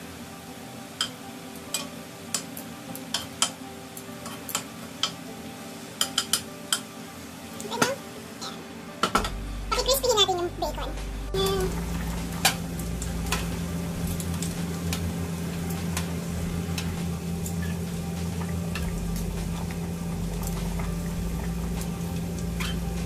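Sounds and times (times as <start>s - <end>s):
bacon sizzling in a frying pan: 0.0s - 23.0s
water boiling in a pot: 0.0s - 23.0s
steady low hum: 9.3s - 23.0s.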